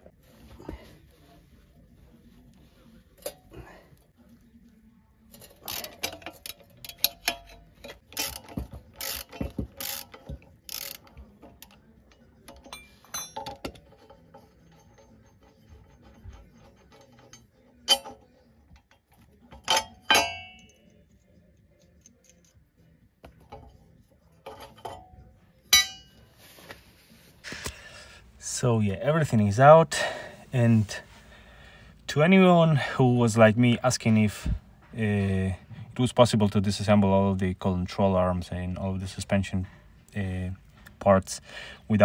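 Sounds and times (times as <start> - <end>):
ringing metallic clink: 12.5 - 15.7, 19.6 - 21.0, 24.8 - 26.2.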